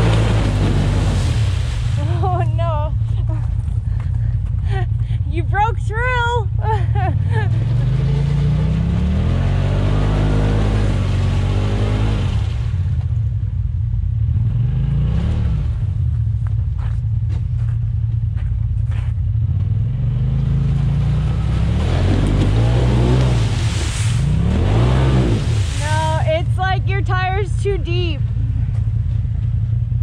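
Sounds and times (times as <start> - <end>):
engine revving: 0.0 - 2.2, 7.1 - 13.0, 14.2 - 16.0, 19.4 - 27.9.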